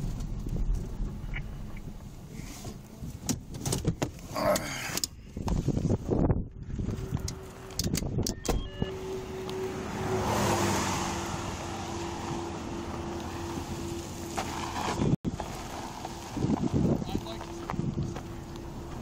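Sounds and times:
low hum: 0.0s - 3.1s
vehicle passing: 8.9s - 19.0s.

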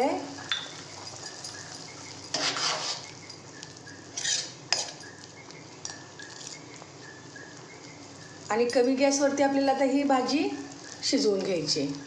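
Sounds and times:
metal ladle scraping pot: 2.3s - 3.1s, 4.1s - 5.0s.

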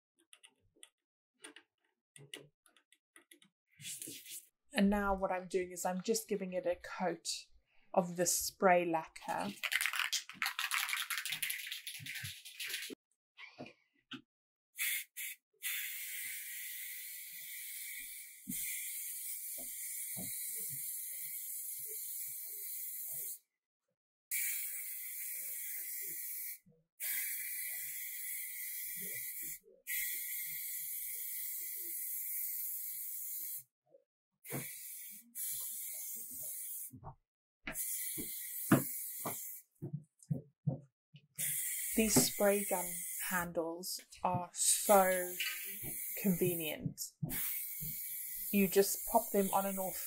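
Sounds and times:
aerosol can spraying hiss: 14.8s - 23.4s, 24.3s - 33.6s, 34.5s - 36.9s, 37.8s - 39.6s, 41.4s - 43.4s, 44.8s - 46.7s, 47.3s - 50.0s.

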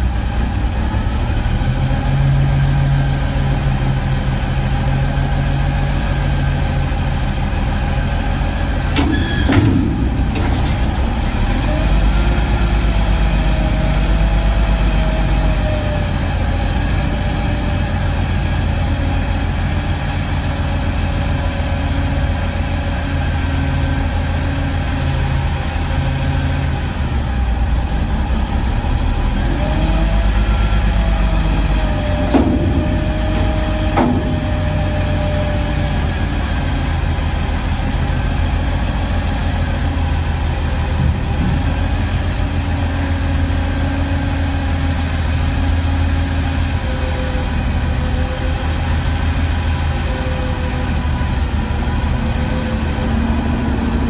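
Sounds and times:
diesel engine idling: 0.0s - 54.0s
hydraulic whine: 8.6s - 13.1s
loud metal bangs: 8.9s - 11.9s, 32.2s - 35.2s.

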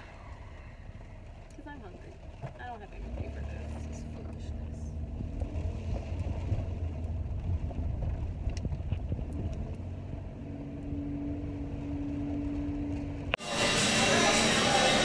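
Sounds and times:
car road noise rumble: 0.0s - 15.0s
steady hum: 13.4s - 15.0s.

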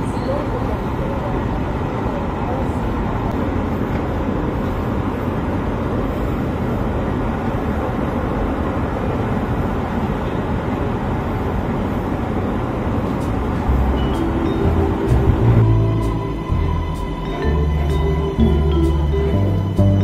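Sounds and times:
moving walkway rumbling: 0.0s - 20.0s.

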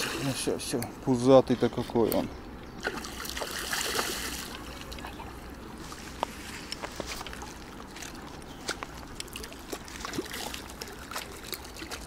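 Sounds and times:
fish splashing in water: 2.8s - 5.0s, 7.3s - 12.0s.

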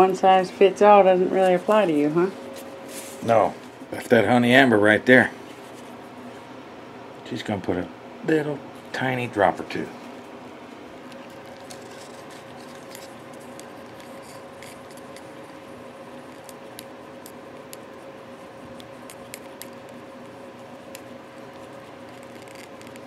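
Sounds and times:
steady background hum: 0.0s - 23.0s
cup and stirrer clicks and scrapes: 11.4s - 15.4s, 21.7s - 23.0s.

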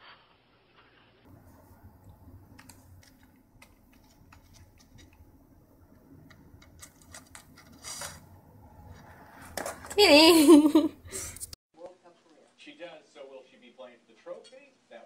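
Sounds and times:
low steady hum: 1.2s - 11.6s.

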